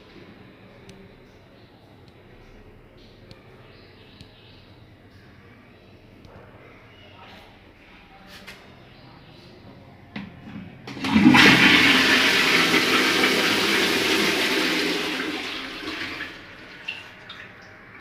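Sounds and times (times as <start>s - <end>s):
water rushing into toilet pan: 10.9s - 17.6s.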